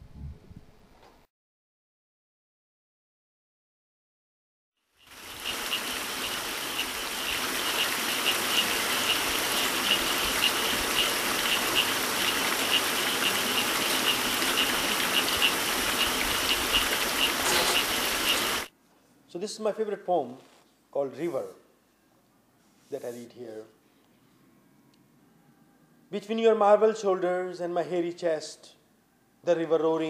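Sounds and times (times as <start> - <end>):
stream rushing over rocks: 5.1 - 18.7.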